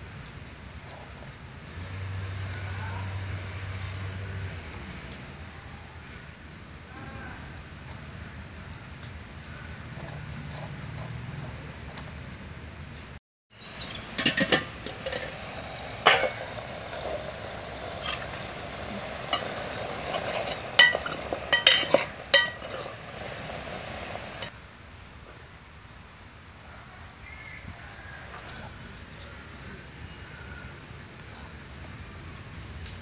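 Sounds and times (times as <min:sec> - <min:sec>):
curry bubbling and hissing: 0:00.0 - 0:24.6
metal ladle scraping a metal pot: 0:13.8 - 0:17.2, 0:17.8 - 0:24.5.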